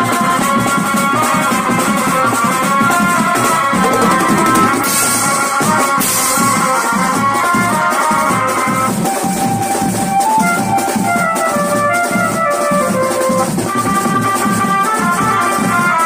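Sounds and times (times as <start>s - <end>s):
tom drums beaten fast: 0.0s - 16.0s
keyboard melody: 3.6s - 6.0s
cymbal crashes: 3.8s - 6.5s.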